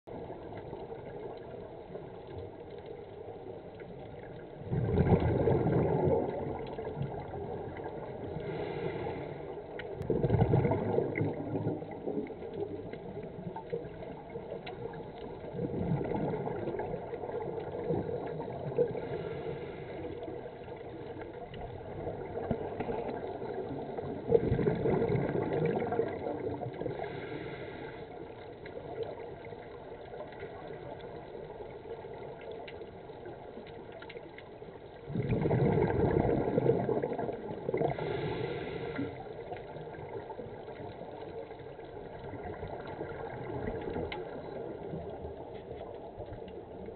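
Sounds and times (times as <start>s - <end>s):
regulator bubbles gurgling: 0.1s - 46.9s
faint hissing: 18.3s - 21.2s, 26.8s - 28.4s, 37.8s - 40.7s.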